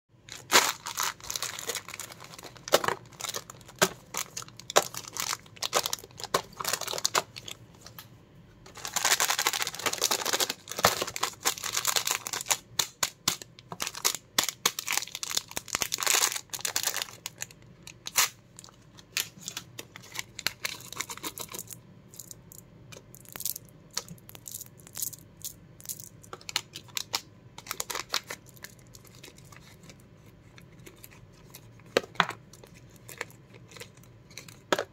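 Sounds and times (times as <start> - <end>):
plastic packets crinkling: 0.3 - 7.6, 8.7 - 22.6, 23.2 - 30.0, 32.5 - 34.9
packet tearing open: 0.4 - 7.2, 8.7 - 12.9.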